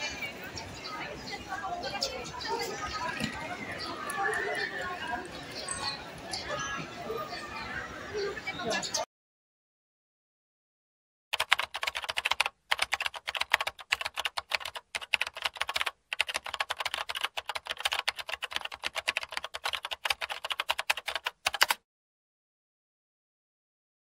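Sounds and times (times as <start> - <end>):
keyboard typing clicks: 11.4 - 21.8.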